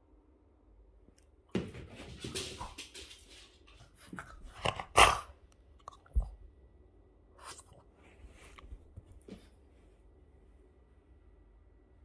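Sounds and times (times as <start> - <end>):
dog scrabbling on hard floor: 1.5 - 4.5.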